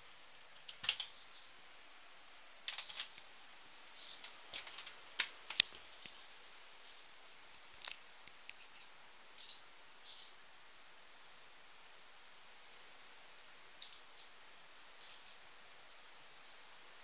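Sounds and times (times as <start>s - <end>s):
scratchy rustles: 7.6s - 8.9s.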